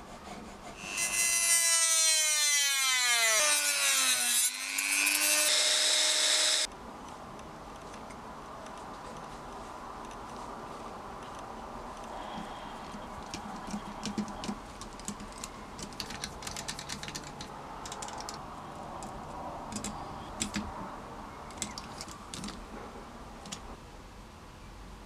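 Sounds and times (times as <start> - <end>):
steady low hiss: 6.6 - 25.0.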